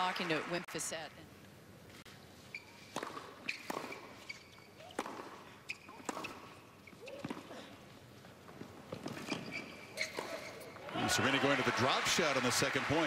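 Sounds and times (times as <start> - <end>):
racket striking tennis ball: 2.9 - 4.3, 4.9 - 6.6.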